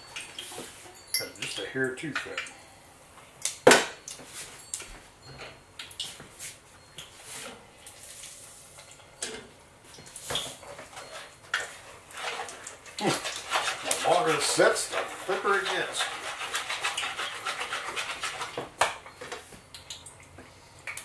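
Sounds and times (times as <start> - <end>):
utensil clinking against mixing bowl: 10.7 - 19.1.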